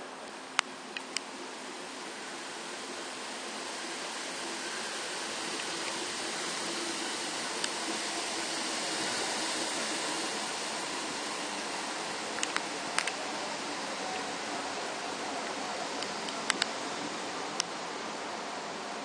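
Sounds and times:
railway station ambience hiss: 0:00.0 - 0:19.0
sharp clicks: 0:00.2 - 0:01.3, 0:12.4 - 0:13.2, 0:16.0 - 0:16.8.

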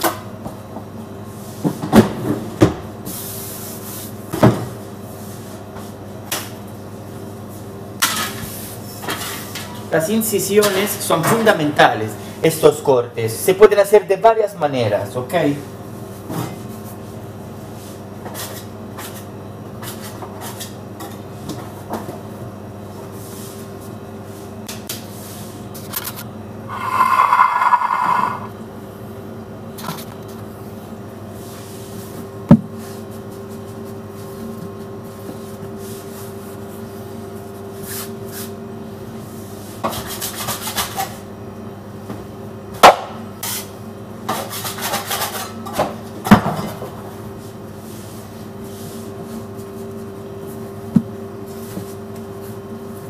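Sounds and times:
steady machine hum: 0:22.2 - 0:37.6.

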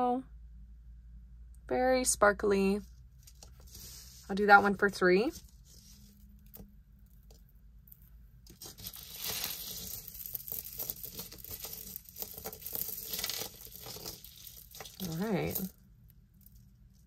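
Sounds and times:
bag crinkling and rustling: 0:05.3 - 0:15.8.

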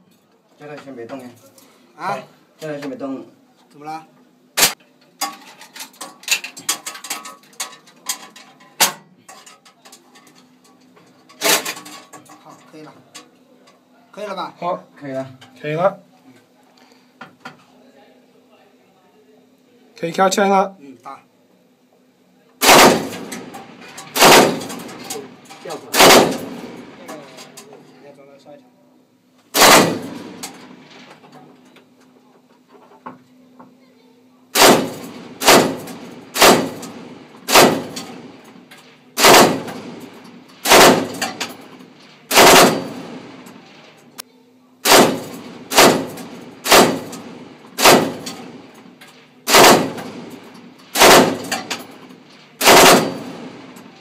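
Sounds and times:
machine gun firing with echo: 0:22.6 - 0:27.1, 0:29.5 - 0:31.1, 0:34.5 - 0:44.0, 0:44.8 - 0:54.0.

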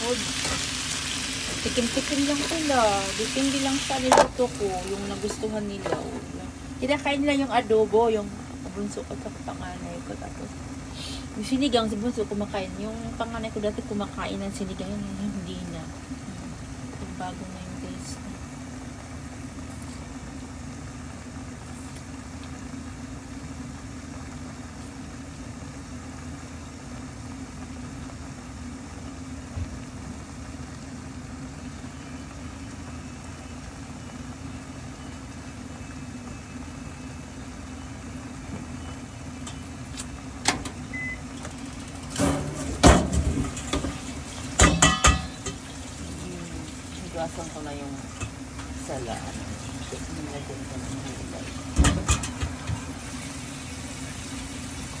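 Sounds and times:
steady low hum: 0:00.0 - 0:54.1
kitchenware clicking and clattering: 0:44.6 - 0:45.6.

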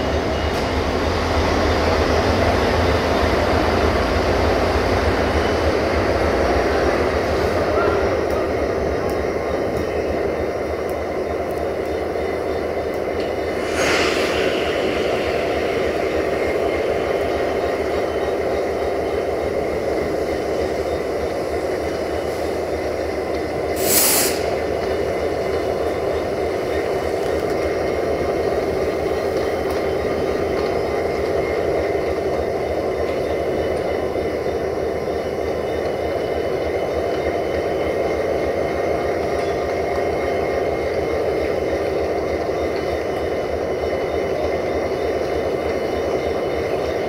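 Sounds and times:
diesel railcar engine drone: 0:00.0 - 0:47.0
compressed air hissing: 0:13.4 - 0:17.6, 0:23.7 - 0:25.4.

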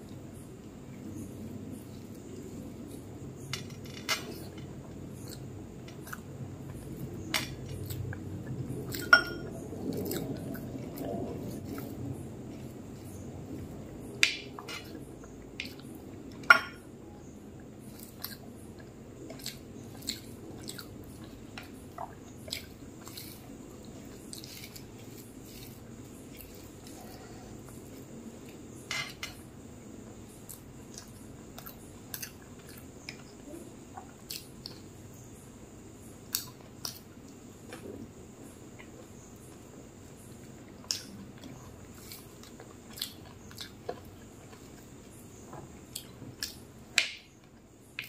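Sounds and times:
chewing: 0:09.8 - 0:13.7, 0:17.9 - 0:28.6, 0:40.4 - 0:46.6.

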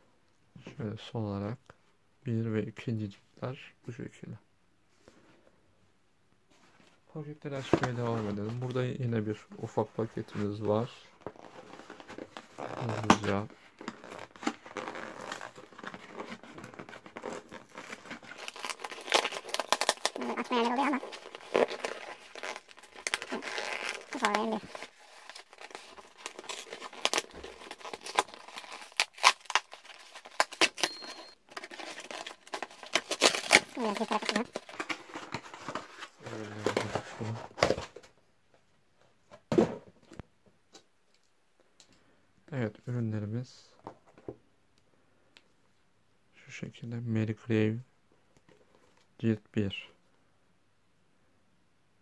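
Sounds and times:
paper and cardboard crinkling: 0:09.7 - 0:38.1.

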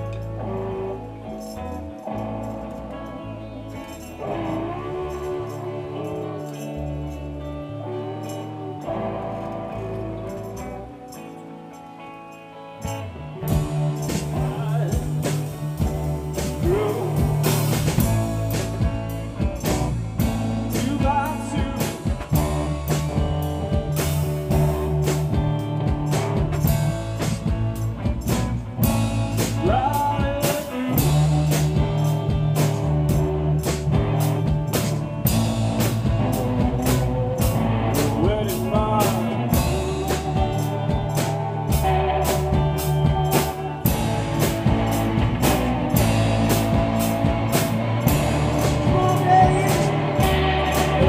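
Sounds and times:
live rock band playing: 0:00.0 - 0:51.0
drum kit beat: 0:12.9 - 0:51.0.

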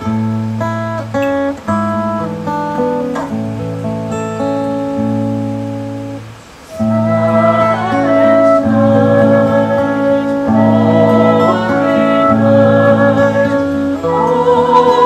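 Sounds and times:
acoustic guitar chords: 0:00.0 - 0:15.0
woman singing through speakers: 0:06.8 - 0:15.0.

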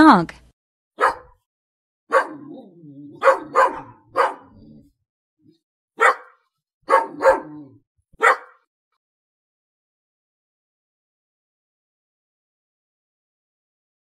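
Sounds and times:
dog barking: 0:01.0 - 0:01.4, 0:02.1 - 0:04.9, 0:06.0 - 0:08.7.

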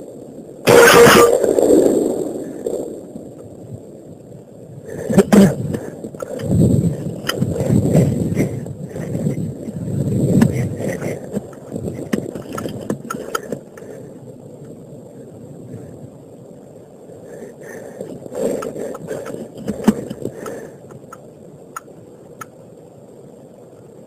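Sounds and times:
rumbling microphone handling noise: 0:00.7 - 0:16.1, 0:17.6 - 0:22.6
scattered clicks: 0:05.2 - 0:13.9, 0:18.0 - 0:22.6.

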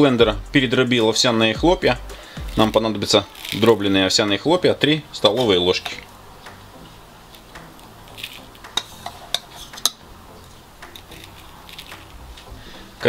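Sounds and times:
spoon scooping oat flakes: 0:02.5 - 0:04.5, 0:05.2 - 0:12.8
spoon clinking against container: 0:08.1 - 0:10.0.

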